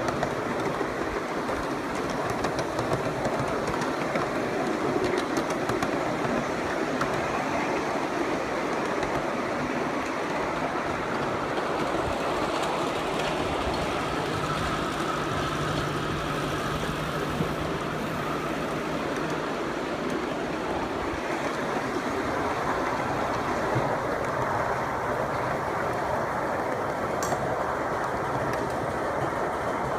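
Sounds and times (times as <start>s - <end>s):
train wheels rattling on rails: 0.0s - 29.9s.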